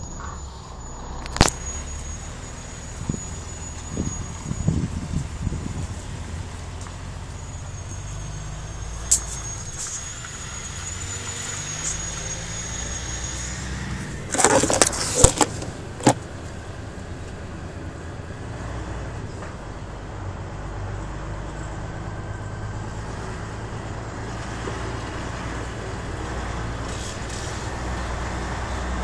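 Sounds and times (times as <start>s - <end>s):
thin high whine: 0.0s - 6.1s, 6.8s - 16.8s
truck diesel engine running: 0.0s - 29.0s.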